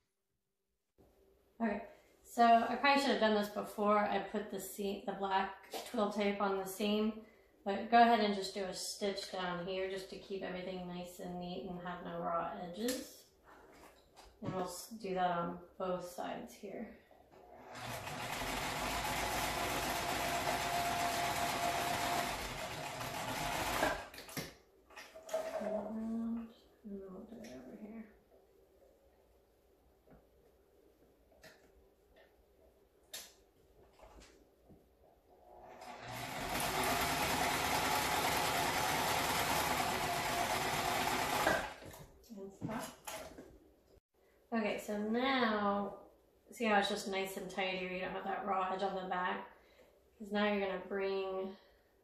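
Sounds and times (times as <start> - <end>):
sewing machine stitching: 17.4 - 24.2, 35.5 - 42.0.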